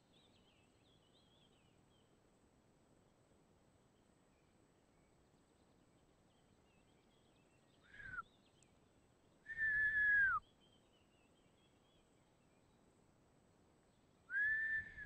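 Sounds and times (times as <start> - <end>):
person whistling: 8.0 - 8.2, 9.5 - 10.4, 14.3 - 15.0.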